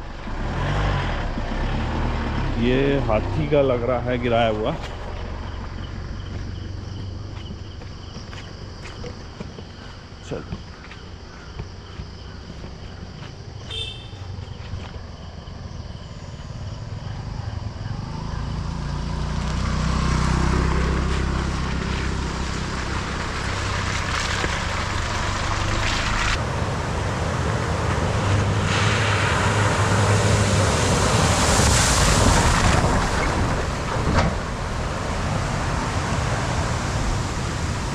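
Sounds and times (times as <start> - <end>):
engine running under load: 0.0 - 15.4
broad rushing noise: 21.2 - 37.9.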